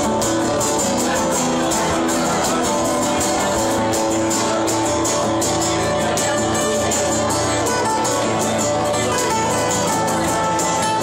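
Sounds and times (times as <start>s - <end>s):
strummed acoustic guitars: 0.0s - 11.0s.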